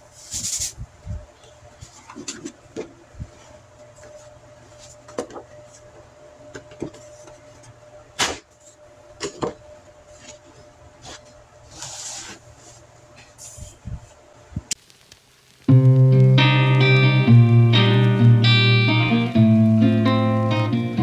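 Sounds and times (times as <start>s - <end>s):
faint steady hum: 0.0s - 21.0s
paper sliding rustle: 10.1s - 13.7s.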